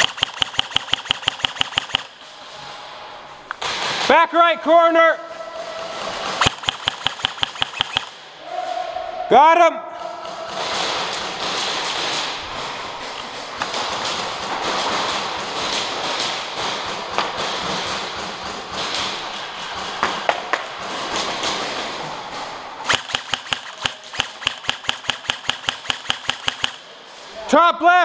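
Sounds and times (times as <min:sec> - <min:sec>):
airsoft gun rapid shots: 0:00.0 - 0:02.2, 0:06.2 - 0:08.2, 0:10.3 - 0:21.8, 0:22.8 - 0:26.9.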